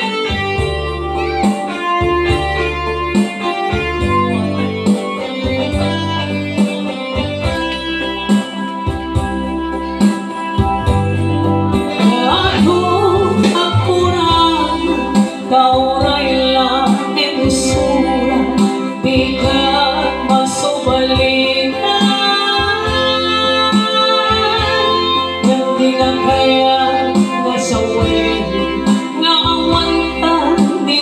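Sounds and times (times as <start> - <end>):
keyboard and bass band music: 0.0 - 31.0
woman singing: 11.8 - 31.0.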